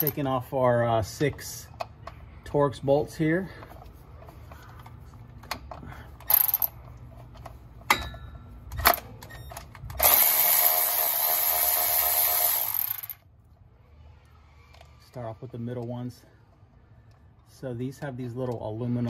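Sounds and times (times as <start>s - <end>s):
cordless electric ratchet running: 10.0s - 13.2s.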